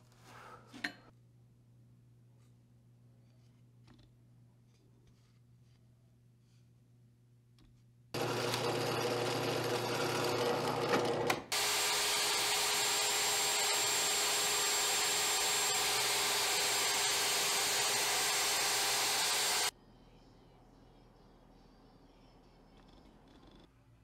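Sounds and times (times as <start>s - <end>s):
drill press boring into wood: 8.2s - 19.7s
router whining: 8.2s - 19.7s.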